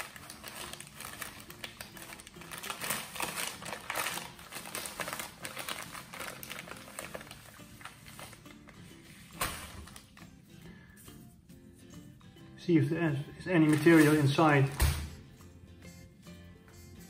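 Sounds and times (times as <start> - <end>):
plastic bag crinkling: 0.0 - 8.8, 13.4 - 15.2.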